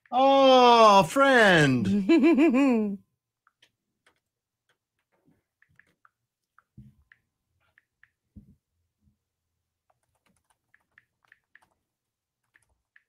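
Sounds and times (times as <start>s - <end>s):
keyboard typing clicks: 9.9s - 13.0s.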